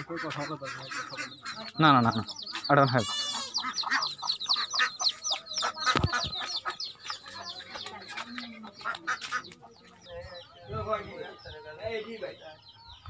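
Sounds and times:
chickens chirping: 0.0s - 13.0s.

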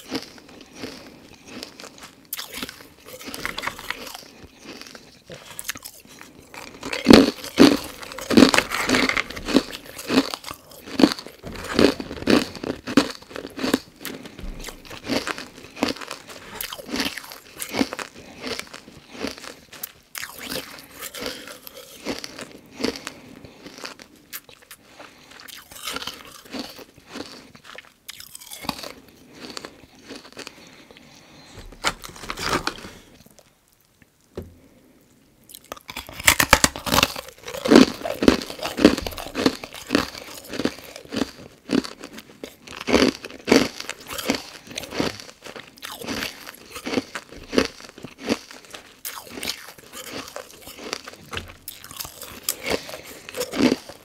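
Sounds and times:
ice being crunched: 6.6s - 18.1s, 31.4s - 33.2s.

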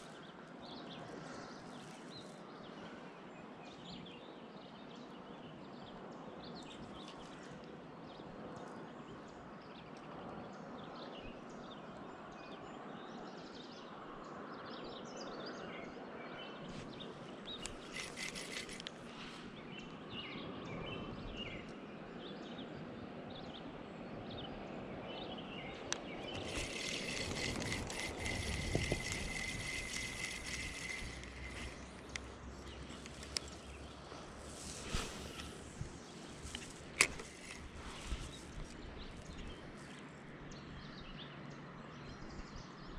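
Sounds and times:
small birds chirping: 16.6s - 21.7s, 25.1s - 42.9s
rattling buzz: 17.6s - 18.9s, 26.2s - 38.7s.

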